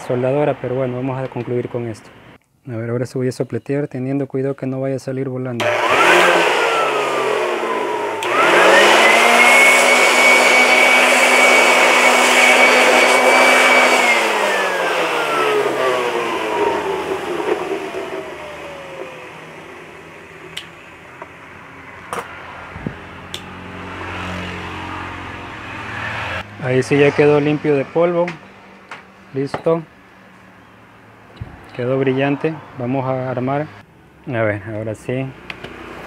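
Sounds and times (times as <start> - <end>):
electric air blower whining: 5.6 - 28.9.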